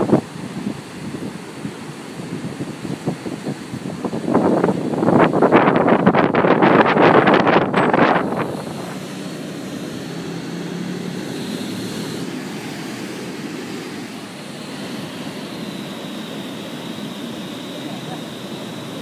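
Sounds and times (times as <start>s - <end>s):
surf breaking on beach: 0.0s - 19.0s
wind buffeting microphone: 0.0s - 19.0s.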